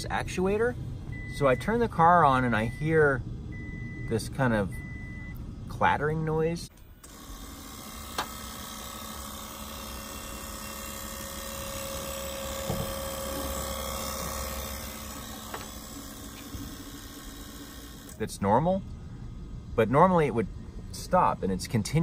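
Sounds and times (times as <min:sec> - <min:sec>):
pump motor whirring: 0:07.0 - 0:18.2.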